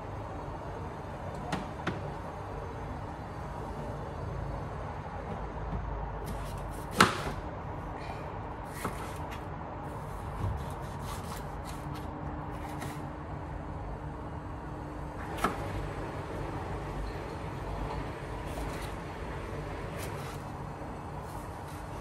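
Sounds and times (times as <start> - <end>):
knife slicing bell pepper: 6.2 - 7.4, 8.6 - 9.4, 10.0 - 13.0, 18.5 - 18.9, 20.0 - 20.4.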